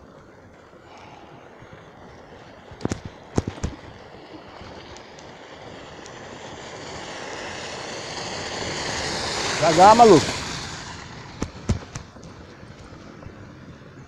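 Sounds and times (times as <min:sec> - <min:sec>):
bicycle knocking over rough road: 0:02.8 - 0:03.9, 0:09.9 - 0:13.4
pickup truck passing: 0:04.0 - 0:13.5.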